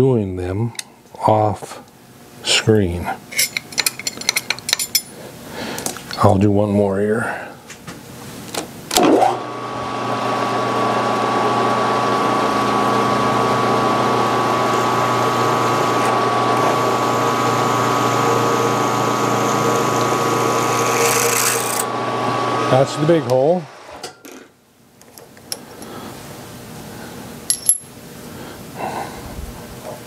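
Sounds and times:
drill press motor humming: 9.0 - 24.0.

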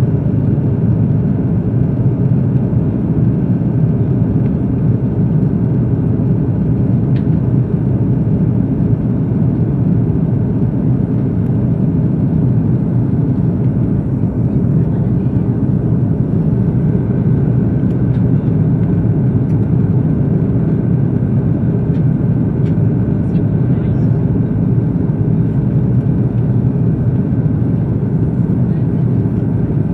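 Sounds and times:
airliner cabin rumble: 0.0 - 29.9.

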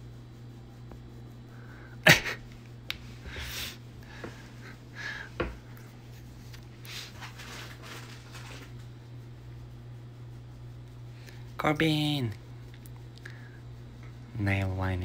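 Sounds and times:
steady low hum: 0.0 - 15.0
puppy snuffling breaths: 3.2 - 7.3.

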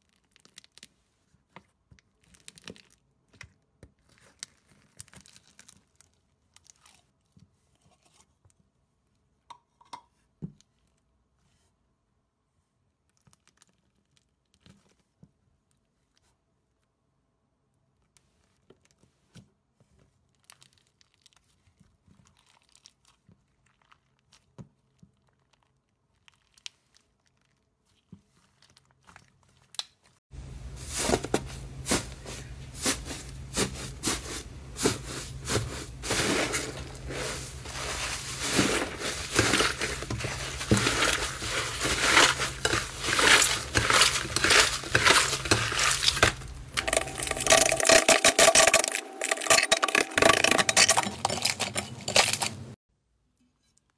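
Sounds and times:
slime crackling and crinkling: 0.0 - 8.4, 12.8 - 16.9, 19.9 - 30.2, 31.7 - 52.8.

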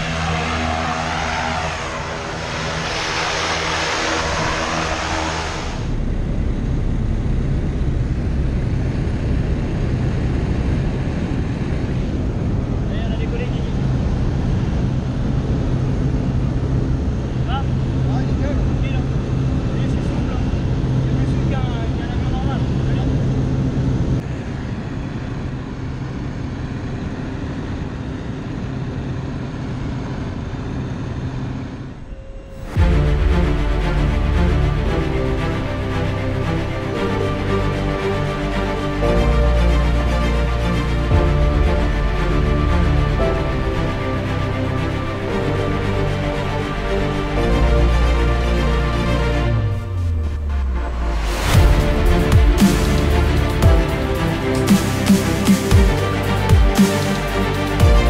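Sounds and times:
rushing air: 0.0 - 13.0
propeller plane engine running: 0.0 - 32.1, 32.8 - 58.0
low plane engine drone in cabin: 0.0 - 51.7.

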